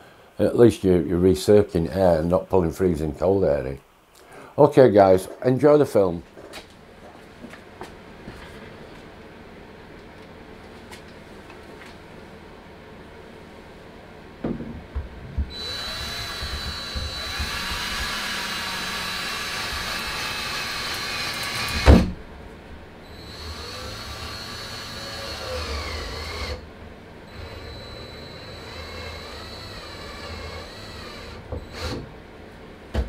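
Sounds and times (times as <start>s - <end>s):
knocks: 14.4s - 15.6s
cordless drill running: 15.5s - 22.0s, 23.1s - 26.6s, 27.3s - 32.0s.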